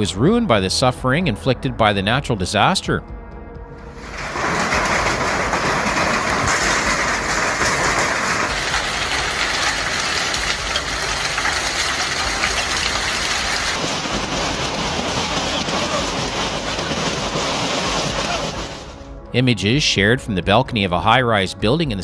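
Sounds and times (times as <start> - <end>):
hail clattering on ground and roofs: 3.9 - 19.0.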